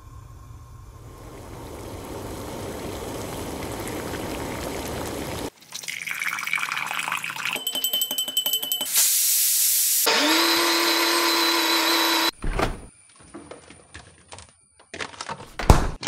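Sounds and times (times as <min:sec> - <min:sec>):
water rushing and bubbling: 0:00.0 - 0:06.6
tea pouring into a glass: 0:01.1 - 0:07.9.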